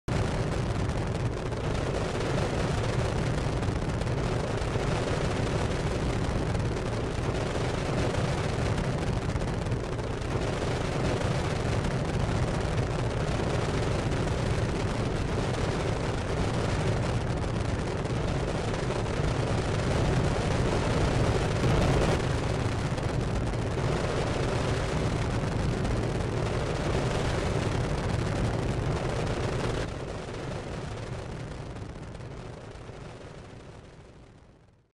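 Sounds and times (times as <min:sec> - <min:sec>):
crackling rumbling roar: 0:00.1 - 0:34.4.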